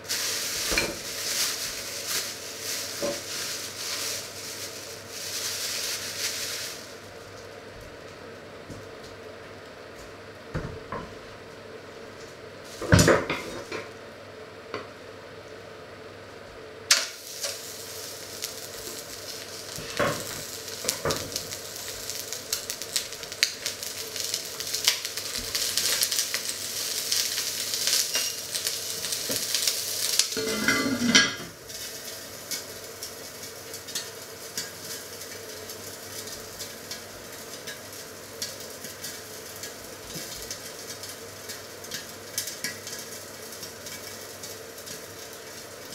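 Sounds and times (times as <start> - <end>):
chicken sizzling in a pot: 0.0 - 45.9
cookware clanking: 30.4 - 31.5.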